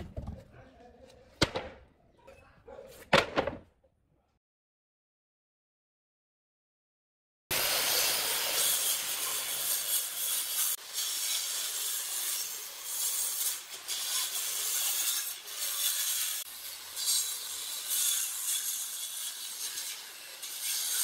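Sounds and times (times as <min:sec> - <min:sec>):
circular saw cutting wood: 0:07.5 - 0:21.0.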